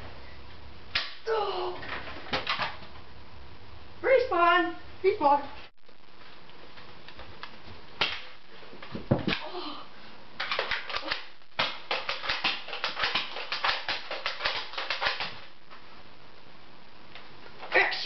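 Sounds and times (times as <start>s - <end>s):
foam dart blaster clacking: 10.4s - 15.4s.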